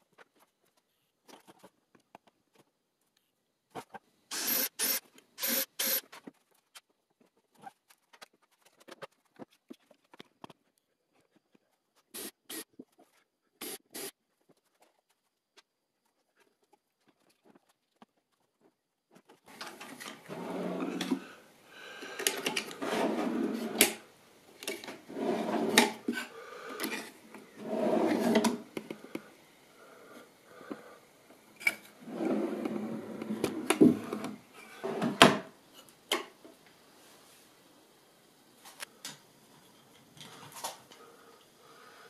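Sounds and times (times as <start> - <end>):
drawer sliding on metal slides: 19.5 - 21.3, 22.2 - 24.0, 24.6 - 26.1, 26.9 - 28.7, 31.7 - 35.4.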